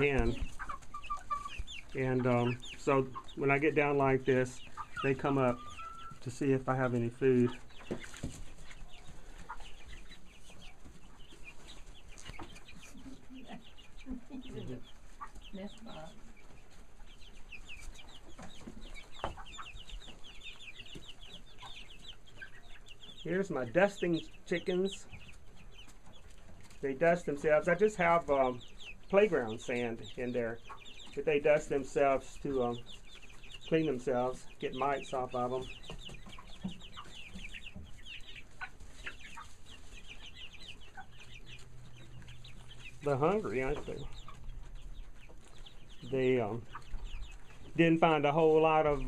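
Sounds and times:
chicks peeping: 0.0 - 49.0.

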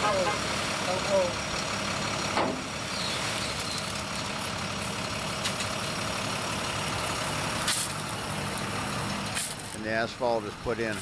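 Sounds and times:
diesel vehicles idling: 0.0 - 11.0.

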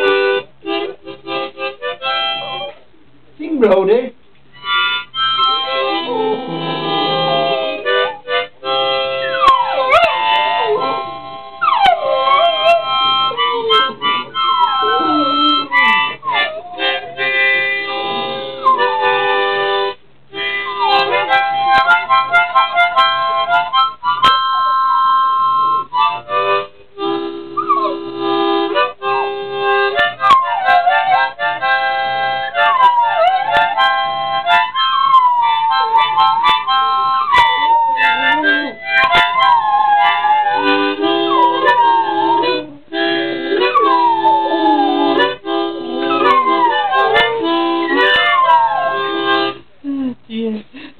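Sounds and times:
harmonica playing chords: 0.0 - 3.0, 4.5 - 50.1
puppies howling: 5.2 - 19.6, 30.0 - 49.6.

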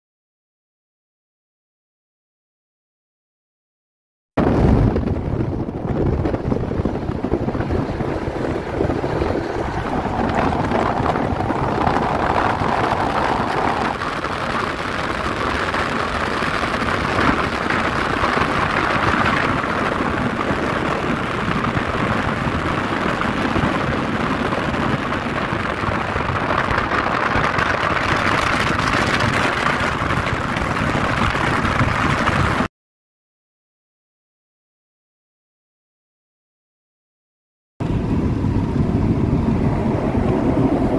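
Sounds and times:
rushing air: 4.4 - 32.7, 37.8 - 40.9
wind on microphone: 4.4 - 32.7, 37.8 - 40.9.

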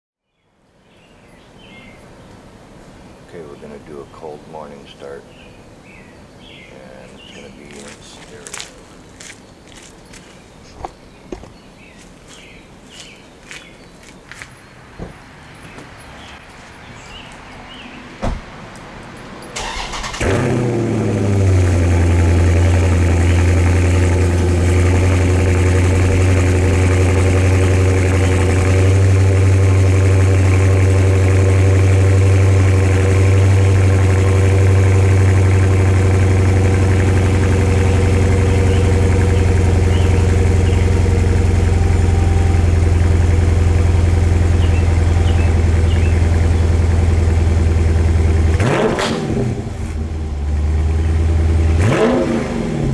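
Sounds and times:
engine starting and idling: 19.6 - 27.3.

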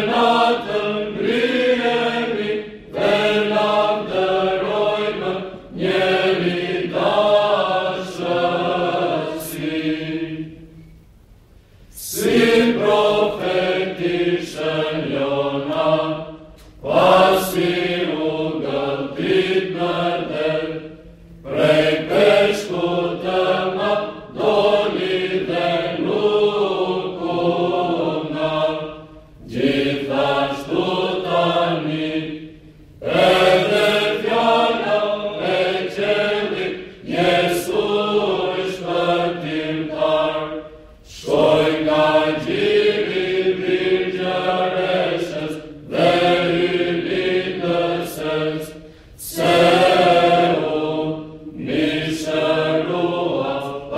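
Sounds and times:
choir chanting unaccompanied: 0.0 - 11.0, 11.9 - 53.9
low held vocal drone: 11.9 - 53.9.

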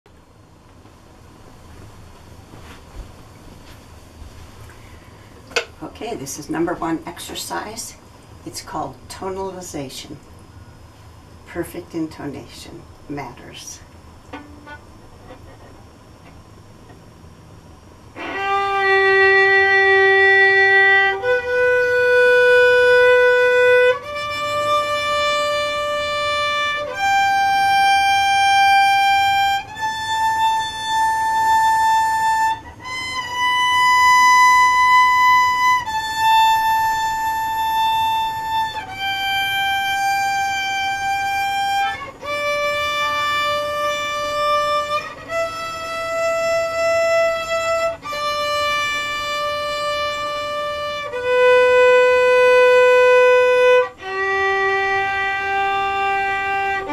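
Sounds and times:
violin long bowed notes: 14.3 - 15.4, 18.1 - 56.9.

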